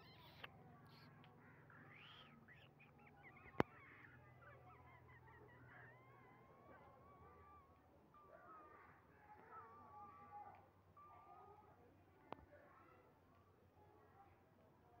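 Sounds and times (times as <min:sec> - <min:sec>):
faint bird chirps: 0:00.0 - 0:14.3.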